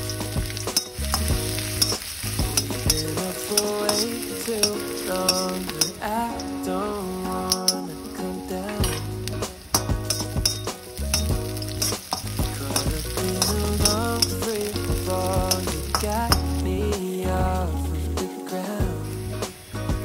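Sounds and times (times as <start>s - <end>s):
metal skimmer scraping a wok: 0.0s - 6.5s, 9.8s - 14.5s
background music with bass: 0.0s - 20.0s
garlic sizzling in hot oil: 0.0s - 20.0s.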